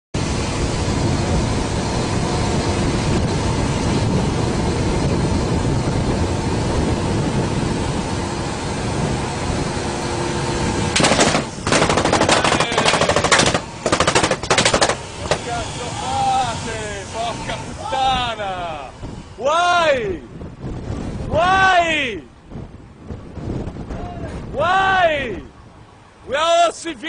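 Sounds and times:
wind: 0:00.1 - 0:27.0
boat engines running: 0:00.2 - 0:21.3
automatic gunfire bursts: 0:11.0 - 0:15.0.

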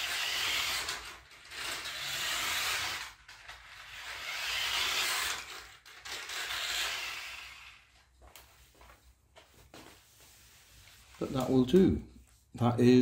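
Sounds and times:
toy car electric motor whirring: 0:00.0 - 0:08.0.

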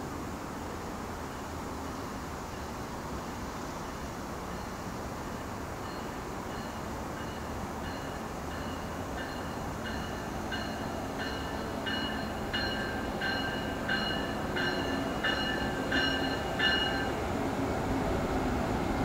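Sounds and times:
train rumbling: 0:02.2 - 0:19.0
locomotive bell ringing: 0:05.8 - 0:17.2.

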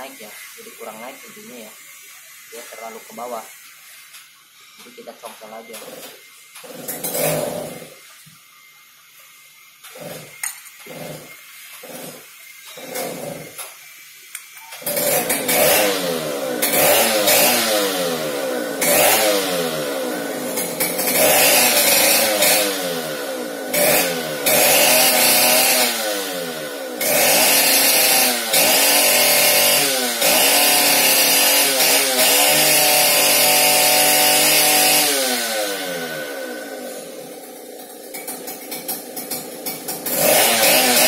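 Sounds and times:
chainsaw engine revving: 0:05.7 - 0:08.0, 0:09.8 - 0:13.7, 0:14.8 - 0:41.0.

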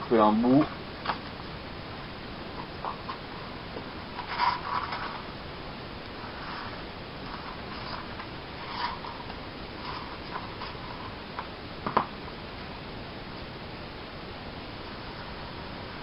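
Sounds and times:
vinyl film rustling and scraping: 0:00.6 - 0:01.6, 0:02.4 - 0:12.1.

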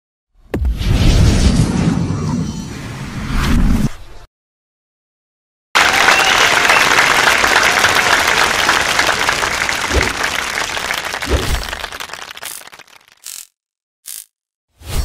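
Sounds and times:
crowd applause: 0:05.8 - 0:13.2.

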